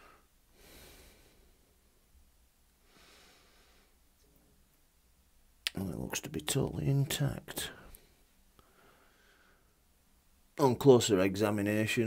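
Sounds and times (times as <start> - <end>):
faint breath: 0.0 - 1.8, 2.8 - 4.1, 7.8 - 9.9.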